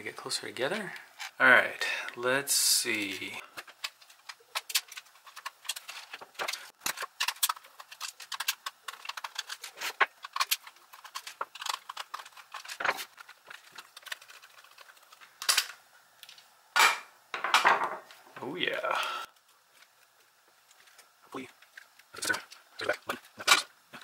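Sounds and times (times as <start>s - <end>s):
plastic toy clicking and rattling: 3.6s - 16.4s.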